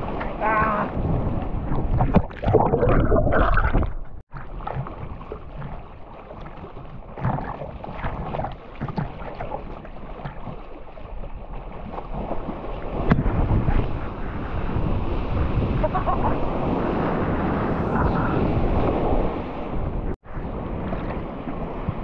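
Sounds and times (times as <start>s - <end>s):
wind on microphone: 0.0s - 4.2s, 12.1s - 22.0s
sea water sloshing and splashing: 0.0s - 22.0s.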